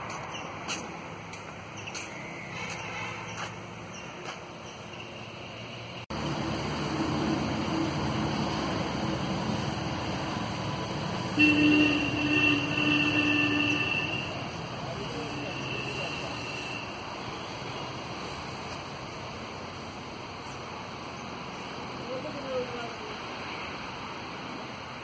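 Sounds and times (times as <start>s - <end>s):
vehicle rumble: 0.0s - 25.0s
horn held blast: 11.3s - 14.4s.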